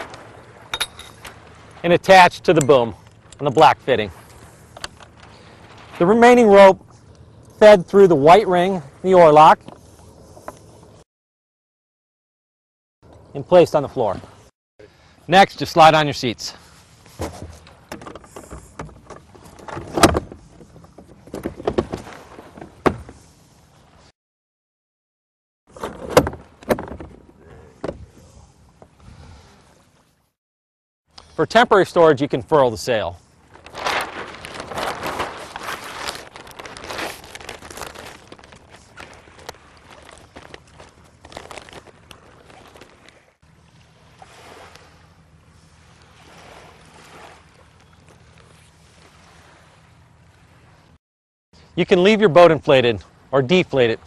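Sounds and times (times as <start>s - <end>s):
water rushing: 0.0s - 4.4s
sail fabric rustling: 33.4s - 43.4s.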